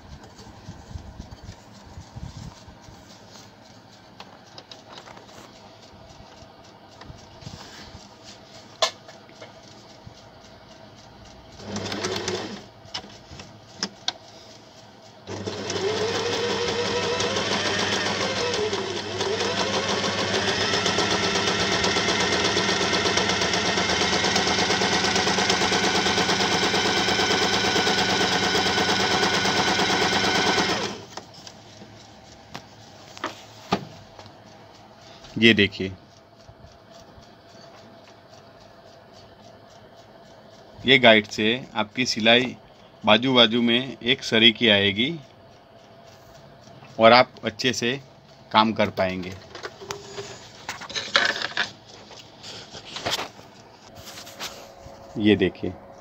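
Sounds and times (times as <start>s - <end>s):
sewing machine clicks: 8.8s - 31.5s
sewing machine stitching: 11.6s - 13.1s, 15.2s - 31.2s.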